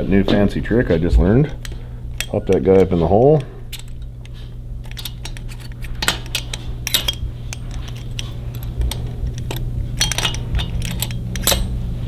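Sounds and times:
steady low hum: 0:00.0 - 0:12.0
metallic clinks of push rod: 0:04.9 - 0:11.8.

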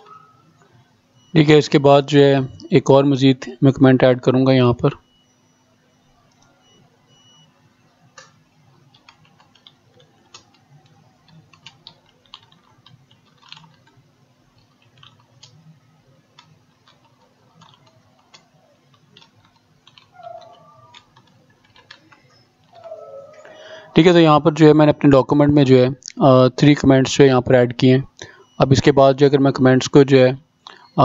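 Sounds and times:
computer keyboard keystrokes: 0:08.2 - 0:14.0, 0:14.6 - 0:15.6, 0:16.4 - 0:23.0.

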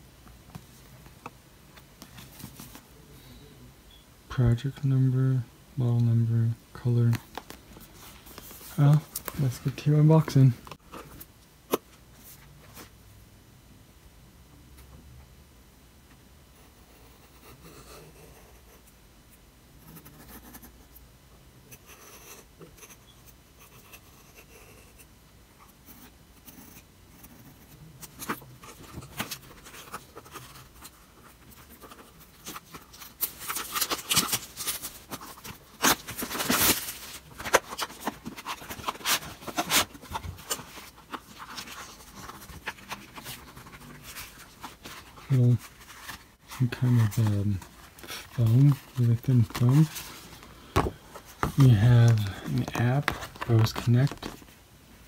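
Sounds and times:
cardboard rustling and scraping: 0:28.0 - 0:54.6.

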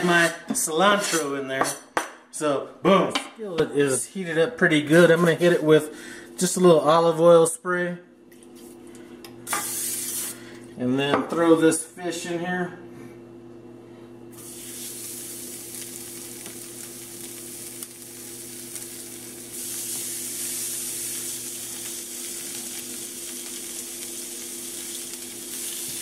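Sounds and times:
steady low hum: 0:02.2 - 0:26.0
fish sizzling in skillet: 0:14.4 - 0:26.0.

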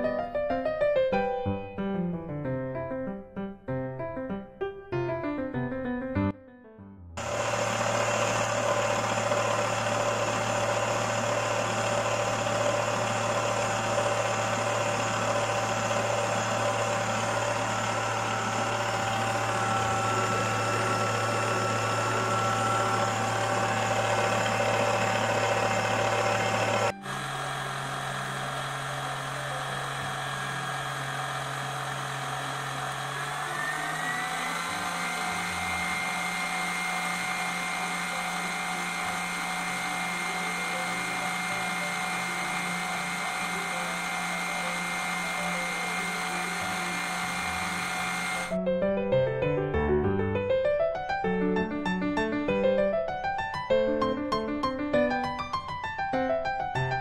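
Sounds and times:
stand mixer motor running: 0:07.2 - 0:48.6.

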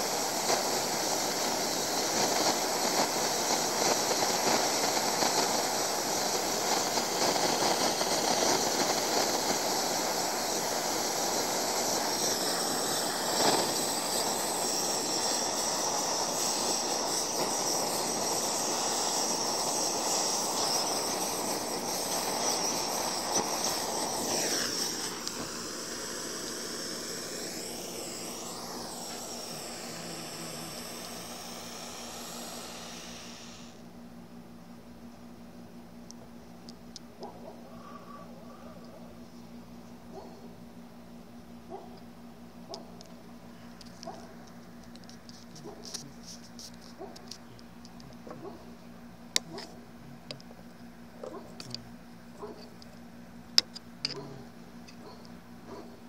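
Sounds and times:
blowtorch flame rushing: 0:00.0 - 0:33.9
faint hiss: 0:00.0 - 0:34.0, 0:43.0 - 0:56.0.

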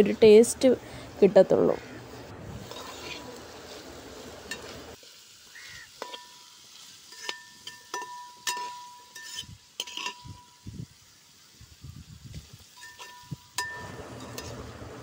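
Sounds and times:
metal spatula scraping a pan: 0:02.6 - 0:03.8, 0:06.0 - 0:10.6, 0:12.7 - 0:14.7.

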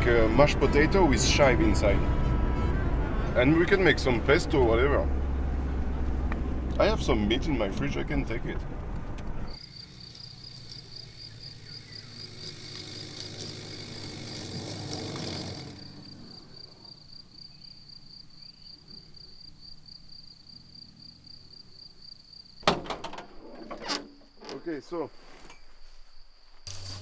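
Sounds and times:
van engine running: 0:00.0 - 0:18.1
insect trilling: 0:09.5 - 0:22.6.

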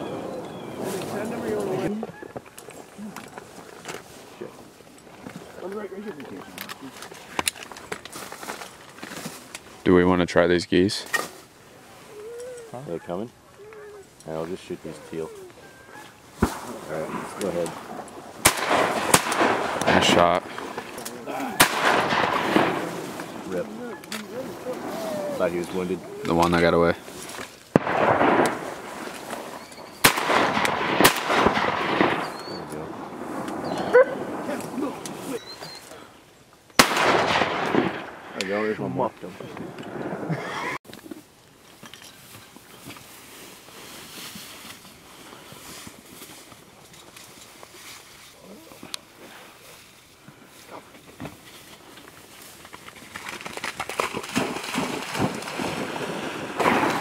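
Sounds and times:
shotgun shots: 0:16.4 - 0:20.4, 0:21.6 - 0:23.6, 0:27.7 - 0:32.7, 0:36.8 - 0:38.3, 0:54.8 - 0:57.0
dog splashing through water: 0:53.9 - 0:56.5.

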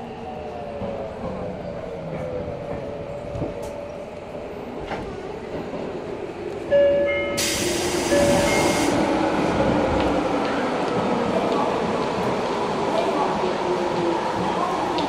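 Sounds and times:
subway rail noise: 0:00.0 - 0:15.0
loud tone with hiss: 0:07.3 - 0:09.0.

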